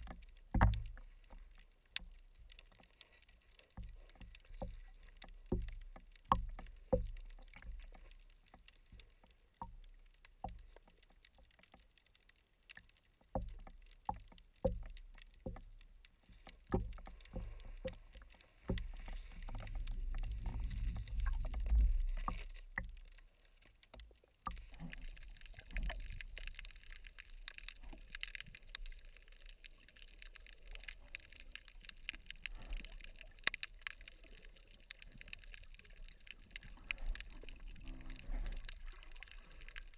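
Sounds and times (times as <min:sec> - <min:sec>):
churning water rumble: 0:00.0 - 0:02.4, 0:13.3 - 0:23.0, 0:24.4 - 0:39.9
underwater knocks and clicks: 0:00.0 - 0:39.9.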